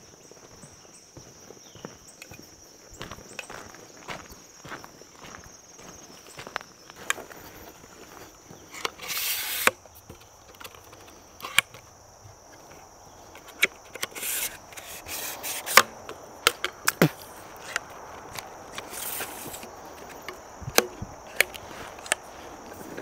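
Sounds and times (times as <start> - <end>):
twigs snapping underfoot: 15.6 - 23.0
rustling brush: 21.2 - 23.0.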